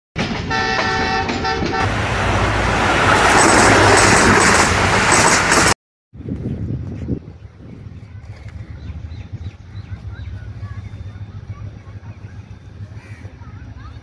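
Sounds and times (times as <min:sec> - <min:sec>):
loud rushing noise: 0:01.8 - 0:05.8.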